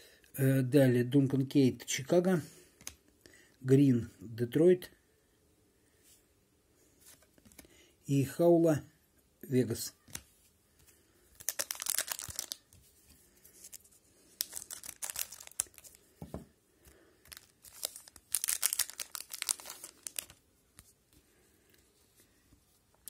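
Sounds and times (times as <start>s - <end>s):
wrapper tearing and crinkling: 11.4s - 12.7s, 13.6s - 16.0s, 17.3s - 20.4s.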